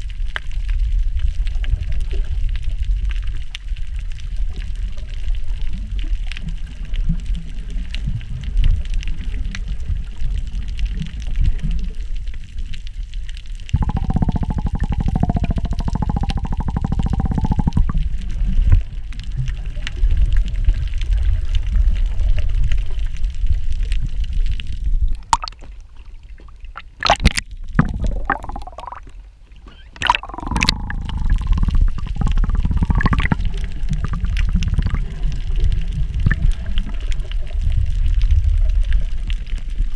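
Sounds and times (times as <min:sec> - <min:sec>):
muffled underwater rumble: 0:00.0 - 0:39.9
harsh underwater buzzing: 0:13.8 - 0:18.1, 0:26.8 - 0:29.1, 0:29.9 - 0:36.6
sharp water splashes: 0:25.2 - 0:25.7, 0:26.7 - 0:29.1, 0:29.9 - 0:35.2.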